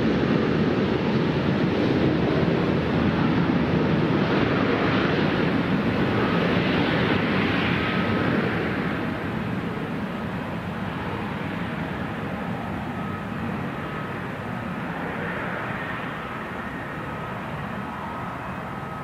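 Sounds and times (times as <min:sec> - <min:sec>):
jet airliner engines rumbling: 0:00.0 - 0:19.0.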